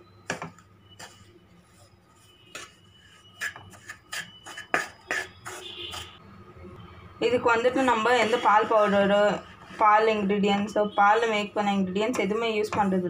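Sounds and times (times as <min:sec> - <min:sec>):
wooden spatula scraping a pan: 0:00.9 - 0:06.2, 0:07.7 - 0:10.7.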